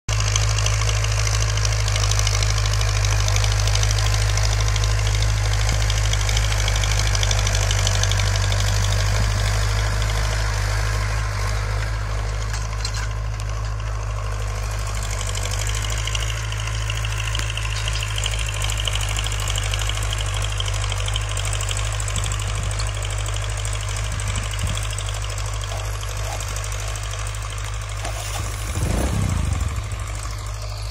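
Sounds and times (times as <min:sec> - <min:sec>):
tractor diesel engine running: 0:00.1 - 0:30.9.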